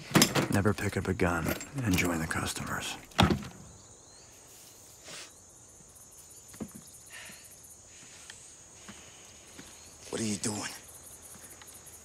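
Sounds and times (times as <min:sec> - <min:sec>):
insects chirring: 0:00.0 - 0:12.0
rustling in straw: 0:04.3 - 0:05.2.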